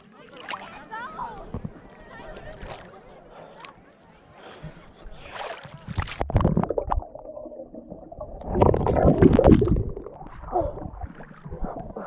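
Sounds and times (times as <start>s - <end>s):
water sloshing and gurgling: 4.7s - 12.0s.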